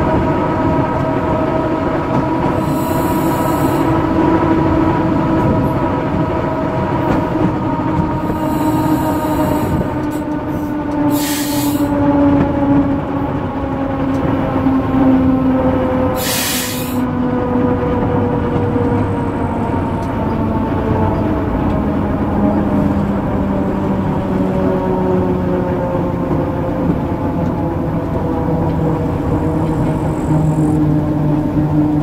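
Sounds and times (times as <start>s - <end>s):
diesel locomotive engine running: 0.0s - 32.0s
train rolling on rails: 0.0s - 32.0s
short hisses: 16.2s - 17.0s.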